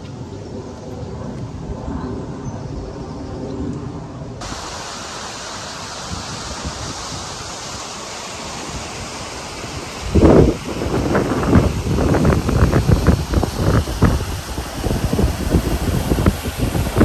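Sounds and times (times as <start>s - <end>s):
outdoor background noise: 0.0s - 17.0s
steady rushing hiss: 4.4s - 17.0s.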